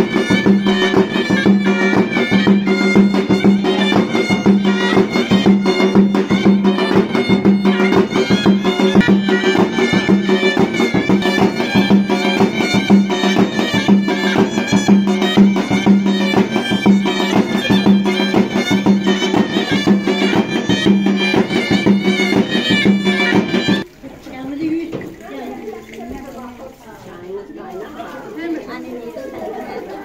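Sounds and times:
busy beat: 0.0 - 24.0
reedy wind instrument melody: 0.0 - 24.0.

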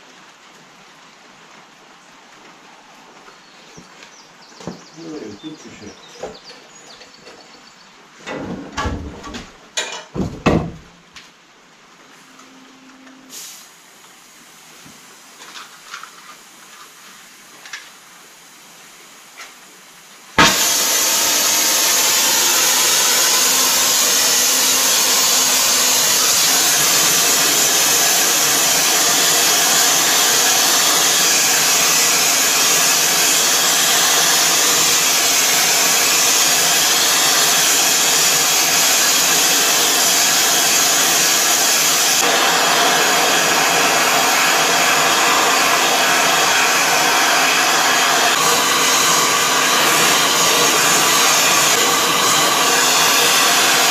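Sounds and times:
gas torch flame hissing: 13.3 - 13.8, 20.4 - 53.9.

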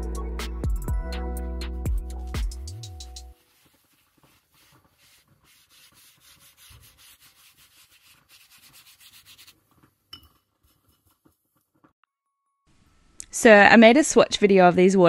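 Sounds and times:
brush scrubbing paper: 3.2 - 10.0.

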